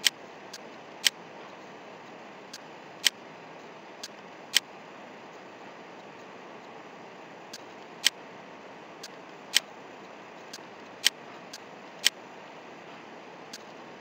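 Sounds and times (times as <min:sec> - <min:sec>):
low hiss: 0:00.0 - 0:14.0
computer mouse clicks: 0:10.5 - 0:12.2.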